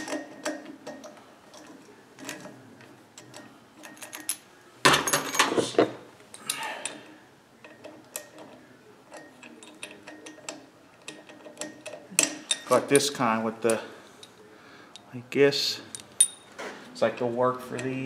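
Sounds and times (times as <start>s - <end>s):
metal tools clinking: 3.2s - 7.0s, 7.6s - 15.1s, 15.8s - 16.7s.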